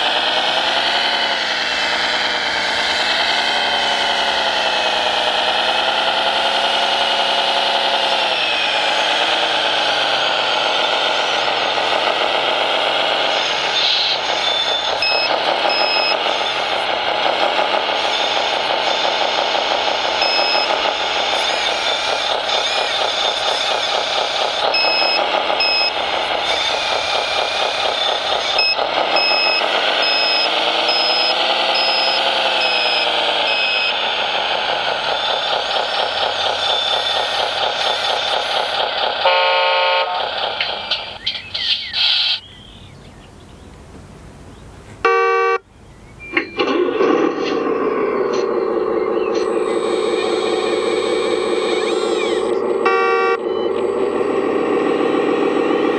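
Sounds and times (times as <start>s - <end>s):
model truck engine: 0.0s - 55.9s
reversing beeps: 13.7s - 16.8s, 20.2s - 23.6s, 24.6s - 34.2s, 46.2s - 46.7s.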